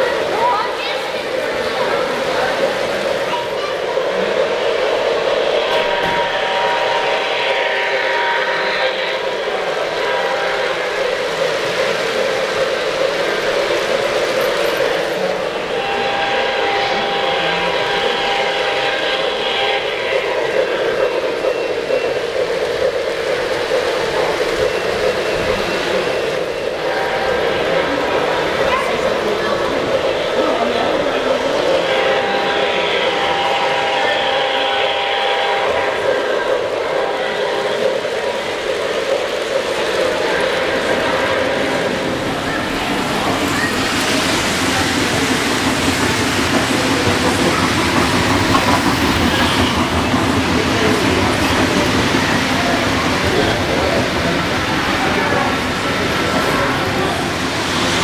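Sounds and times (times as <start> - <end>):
model train rattling on track: 0.0 - 58.0.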